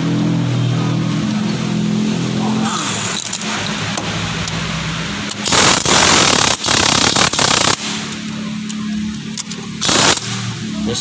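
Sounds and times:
loud rushing noise: 0:00.0 - 0:08.3, 0:09.8 - 0:11.0
car engine humming: 0:00.0 - 0:11.0.

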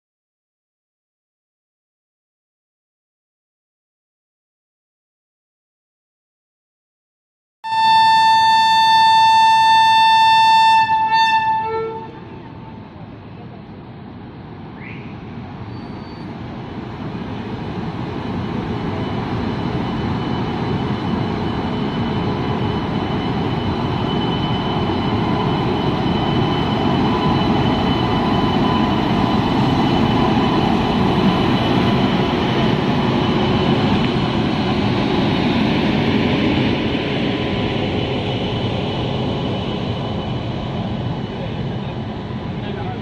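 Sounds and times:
train wheels and coaches rolling: 0:12.3 - 0:43.0.

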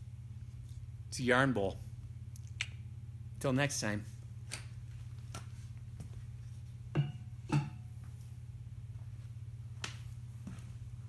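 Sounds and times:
steady low hum: 0:00.0 - 0:11.0
pottery bat knocks and clicks: 0:07.0 - 0:07.8.

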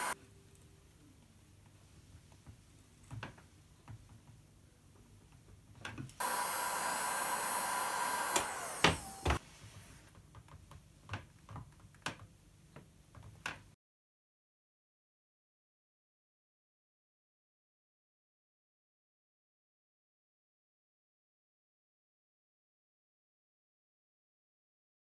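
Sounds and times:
heat gun blowing with whine: 0:06.2 - 0:09.4.

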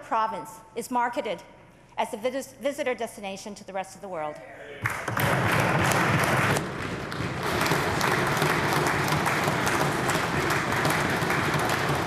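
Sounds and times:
crowd applauding: 0:04.8 - 0:12.0.

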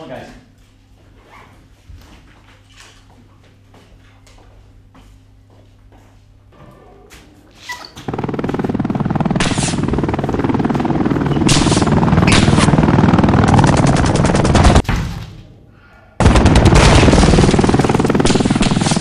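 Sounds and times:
machine-gun fire: 0:08.1 - 0:15.2, 0:16.2 - 0:19.0.

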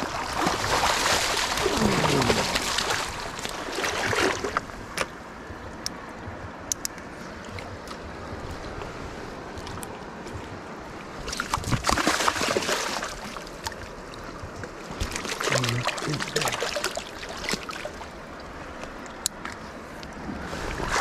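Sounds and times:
splashing in shallow water: 0:00.0 - 0:05.2, 0:11.0 - 0:19.6, 0:20.2 - 0:21.0
river current rushing: 0:00.0 - 0:05.5, 0:14.9 - 0:19.8.

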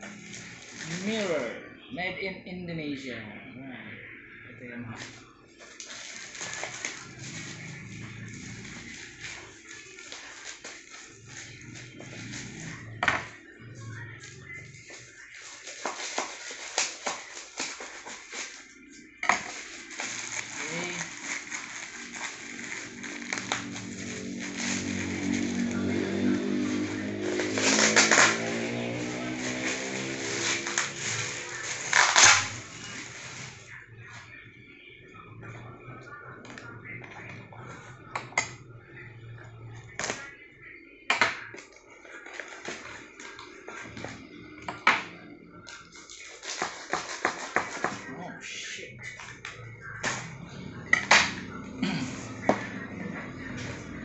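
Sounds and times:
plastic bag rustling and crinkling: 0:00.0 - 0:01.5, 0:05.0 - 0:12.9, 0:14.2 - 0:33.8
knife cutting packing tape: 0:26.6 - 0:32.7.

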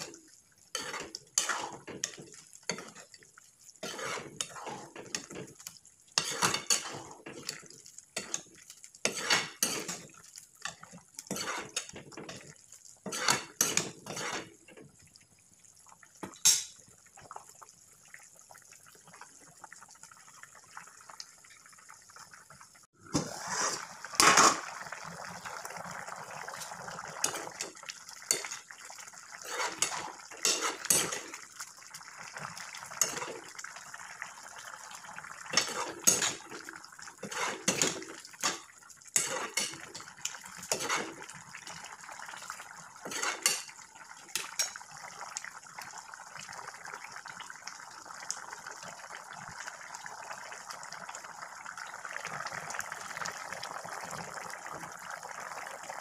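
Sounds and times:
ladle stirring and scraping pan: 0:00.0 - 0:14.8, 0:16.2 - 0:16.8, 0:23.1 - 0:24.9, 0:26.4 - 0:31.6, 0:32.4 - 0:33.6, 0:35.5 - 0:41.8, 0:42.4 - 0:44.9.

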